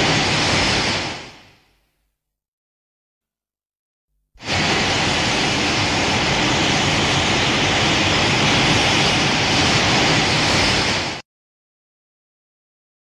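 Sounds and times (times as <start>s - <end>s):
steady rushing hiss: 0.0s - 1.8s, 4.4s - 11.2s.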